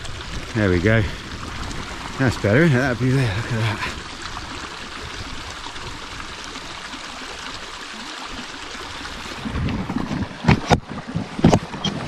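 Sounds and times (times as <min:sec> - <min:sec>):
wind rumble on microphone: 0:00.0 - 0:06.6, 0:09.0 - 0:12.0
rushing stream water: 0:00.0 - 0:12.0.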